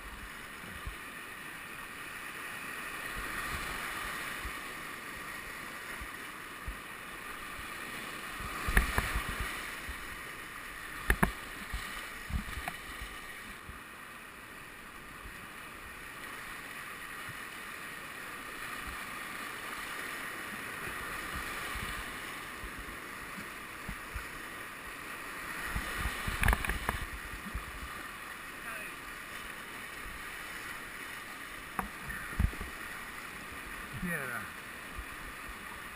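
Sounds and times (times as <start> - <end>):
sharp knocks and splashes: 8.5 - 9.9, 11.0 - 13.1, 25.7 - 27.8
whitewater rapids rushing: 15.9 - 35.9.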